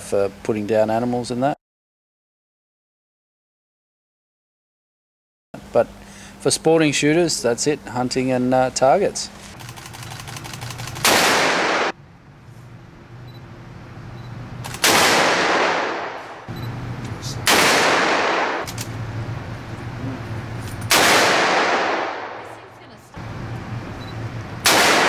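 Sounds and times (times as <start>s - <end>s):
handgun shots echoing indoors: 11.0s - 12.0s, 14.6s - 16.5s, 17.4s - 18.9s, 20.9s - 22.4s, 24.6s - 25.0s.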